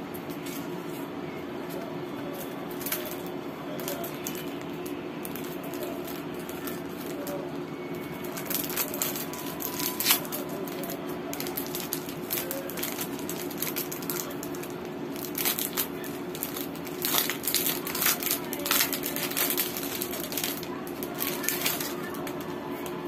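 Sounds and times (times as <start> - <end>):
steady low hum: 0.0 - 23.0
plastic packaging crinkling: 0.3 - 23.0.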